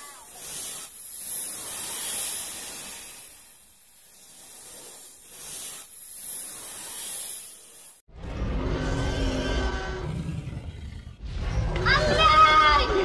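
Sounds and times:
snake hissing: 0.0s - 8.1s.

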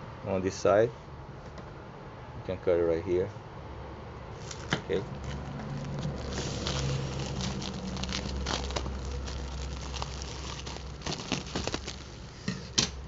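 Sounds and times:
bubble wrap crinkling: 4.4s - 12.5s.

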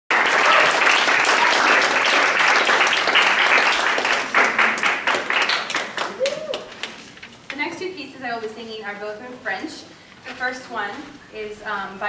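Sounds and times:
audience applauding: 0.1s - 7.1s.

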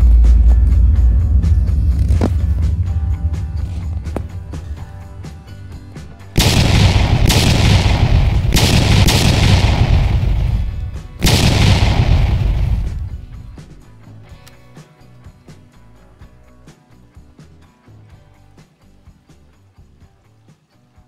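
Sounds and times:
background music: 0.0s - 21.0s
loud blasts: 6.4s - 13.8s.

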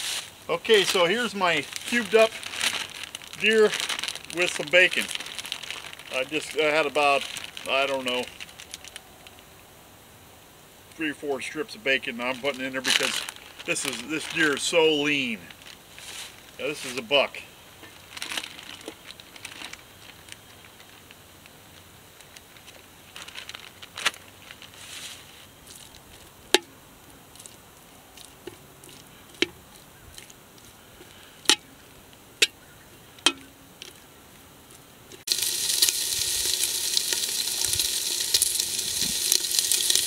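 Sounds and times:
meat sizzling: 0.0s - 8.8s, 35.2s - 40.0s.

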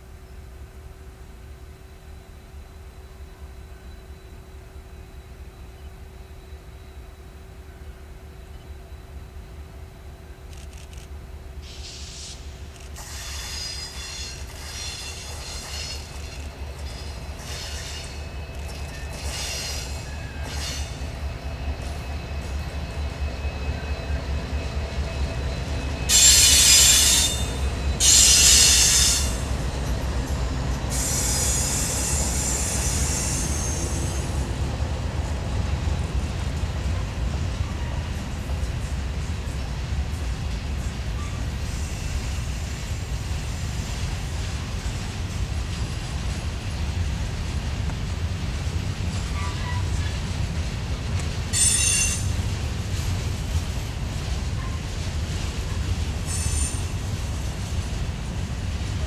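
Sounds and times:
train cars rumbling: 2.9s - 59.0s
steel wheels squealing: 11.6s - 34.6s, 49.2s - 50.2s, 51.5s - 52.5s, 55.7s - 57.5s
high-pitched wheel squeal: 23.2s - 29.5s, 31.0s - 34.4s, 51.6s - 52.3s, 56.3s - 57.0s.

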